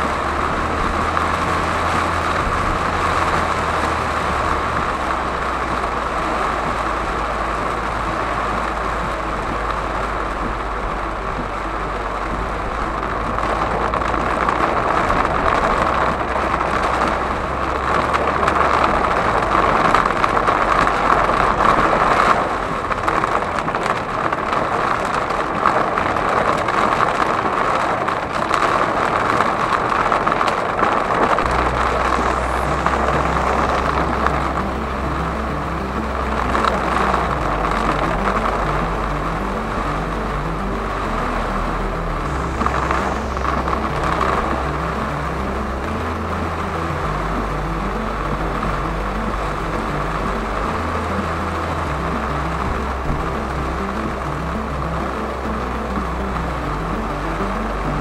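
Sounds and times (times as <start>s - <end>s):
heavy rain on car: 0.0s - 58.0s
low engine and road rumble: 0.0s - 58.0s
tyres on wet road: 0.0s - 58.0s.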